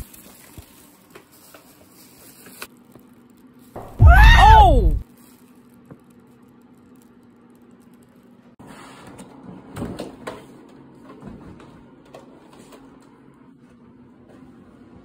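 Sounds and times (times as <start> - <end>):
rustling and handling noise: 4.9 - 9.0.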